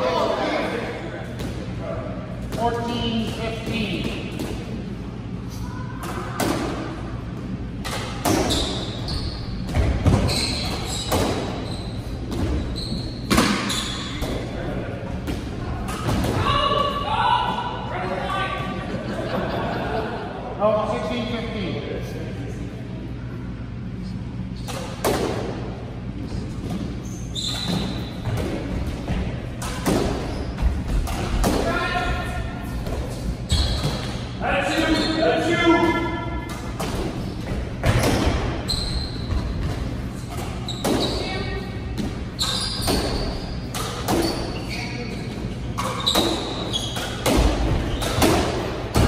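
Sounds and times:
squash ball impacts echoing: 0.7 - 5.2, 5.8 - 17.9, 24.6 - 49.0
shoes squeaking on hardwood floor: 8.4 - 14.2, 27.0 - 28.3, 33.4 - 34.2, 38.6 - 41.6, 42.3 - 47.2
squash ball smacks: 13.3 - 14.4, 45.8 - 49.0.

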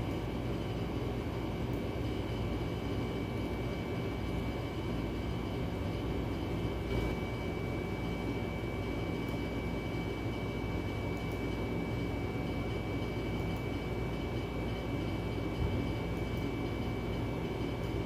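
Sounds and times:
low mechanical rumble and hum: 0.0 - 18.0.

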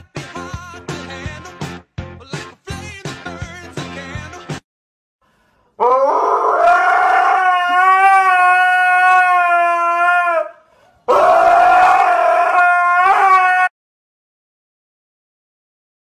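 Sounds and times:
husky howling: 5.8 - 13.7.

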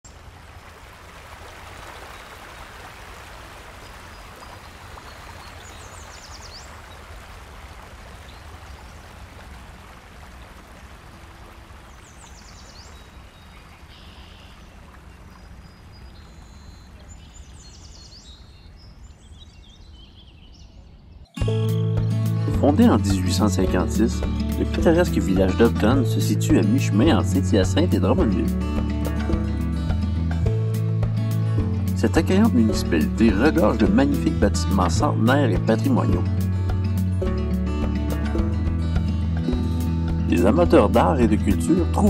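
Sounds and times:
birds chirping: 3.7 - 42.0
high bird song phrase: 12.0 - 28.6.

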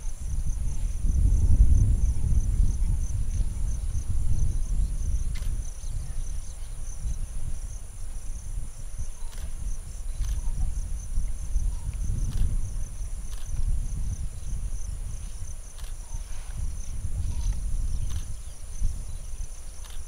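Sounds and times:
high insect whine: 0.0 - 20.0
insect fast-pulsing trill: 0.0 - 20.0
low wind rumble: 0.0 - 20.0
faint clicks: 19.8 - 20.0.

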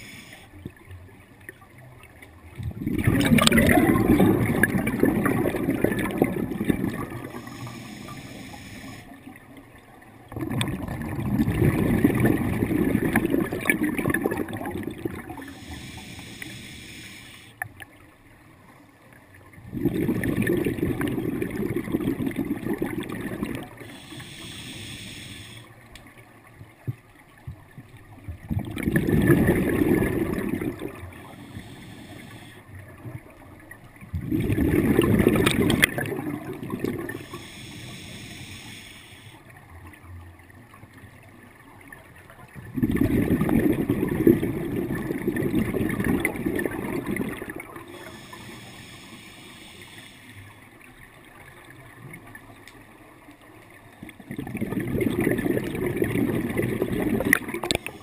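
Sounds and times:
regulator hissing inhale: 0.0 - 0.6, 7.2 - 9.2, 15.4 - 17.7, 23.8 - 25.8, 31.1 - 32.7, 37.0 - 39.5, 47.8 - 50.7, 57.6 - 58.0
gurgling exhaled bubbles: 2.4 - 8.7, 10.2 - 16.0, 19.5 - 24.6, 28.2 - 38.4, 42.5 - 48.9, 54.1 - 58.0.

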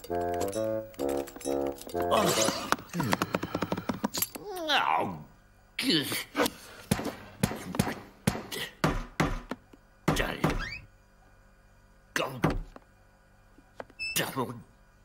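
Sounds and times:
fist knocking on a door: 6.9 - 10.6.

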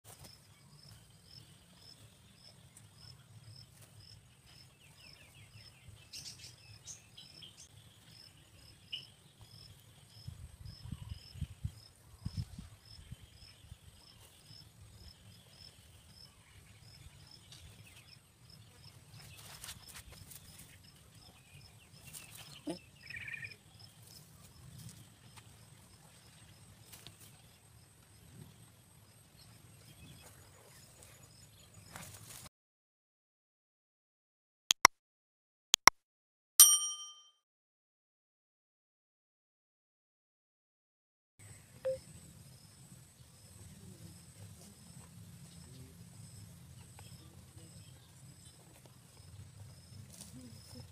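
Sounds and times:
bird-like chirp: 41.4 - 42.2.

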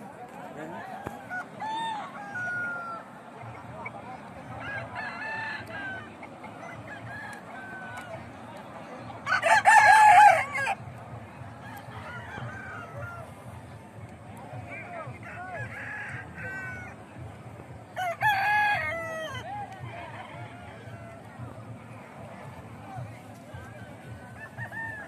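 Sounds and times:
rooster crowing: 1.3 - 3.1, 24.4 - 25.0.

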